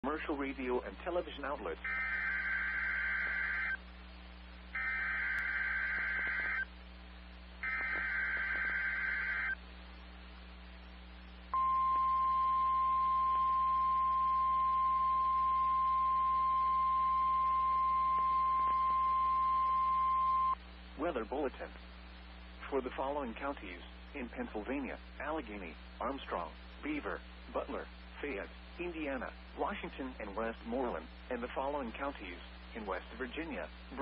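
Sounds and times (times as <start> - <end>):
harsh digital warble bursts: 1.9 - 3.8, 4.8 - 6.7, 7.6 - 9.6
steady warning alarm tone: 1.9 - 3.8, 4.8 - 6.7, 7.6 - 9.6, 11.6 - 20.6.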